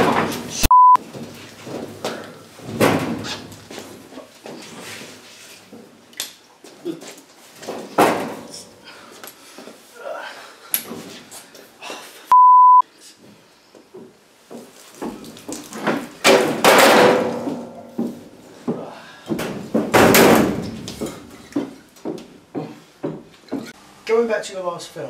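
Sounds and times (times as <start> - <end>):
short loud beep: 0.6 - 1.0, 12.3 - 12.8
door banging: 19.4 - 21.1.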